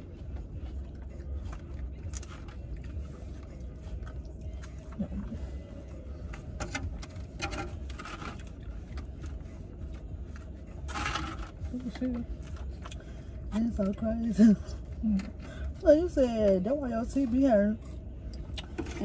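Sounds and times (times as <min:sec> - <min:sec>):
chewing: 0:00.0 - 0:11.0, 0:11.6 - 0:14.0
car interior rumble: 0:00.0 - 0:19.0.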